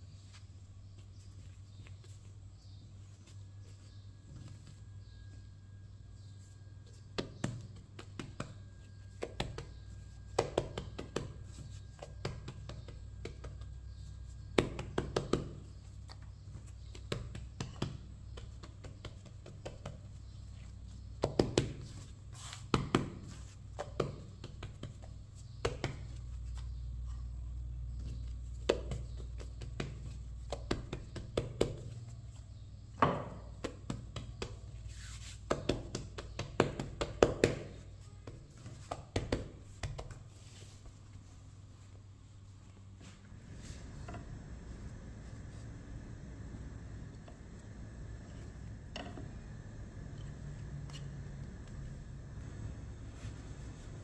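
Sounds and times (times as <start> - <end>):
steady low hum: 0.0 - 54.0
hands patting dough: 0.1 - 54.0.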